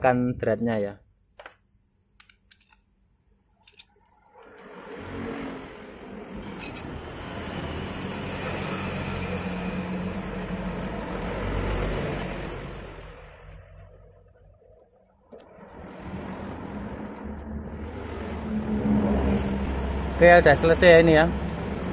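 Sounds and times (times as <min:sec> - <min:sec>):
vehicle engine passing by: 0:04.2 - 0:14.2, 0:15.4 - 0:21.9.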